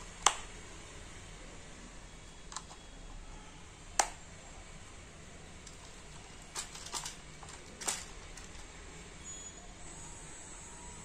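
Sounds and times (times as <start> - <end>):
plastic remote control clicks: 4.0 - 4.2.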